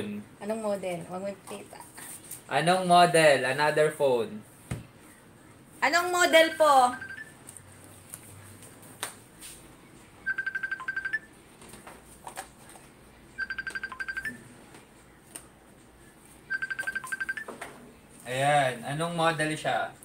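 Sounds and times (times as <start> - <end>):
electronic telephone ringing: 6.4 - 7.4, 10.2 - 11.4, 13.4 - 14.5, 16.5 - 17.6.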